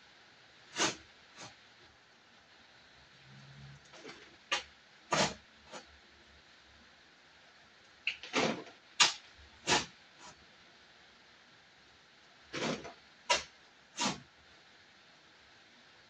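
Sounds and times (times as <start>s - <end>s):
shovel scraping soil: 0.7s - 1.5s, 4.0s - 5.8s, 8.2s - 10.4s, 12.5s - 14.2s
soil thudding into wheelbarrow: 8.3s - 9.1s, 12.6s - 13.4s.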